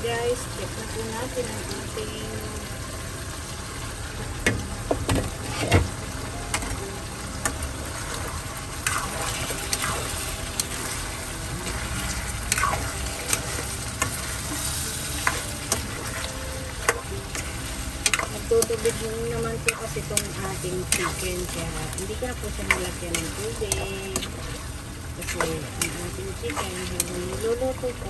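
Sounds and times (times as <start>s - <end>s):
chicken sizzling in a pan: 0.1s - 28.0s
spatula scraping a pan: 8.0s - 27.3s.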